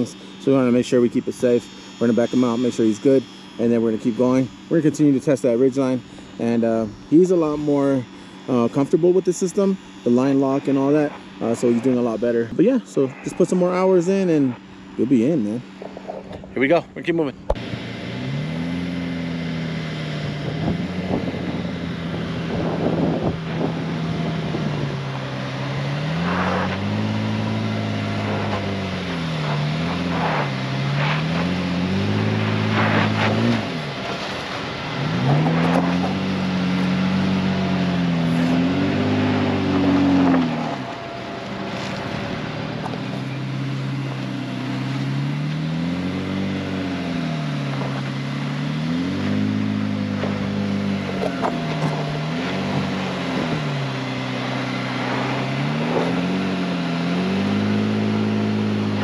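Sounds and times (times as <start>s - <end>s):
truck engine revving: 0.0s - 59.0s
knocks and scrapes: 28.0s - 34.5s, 39.6s - 43.2s.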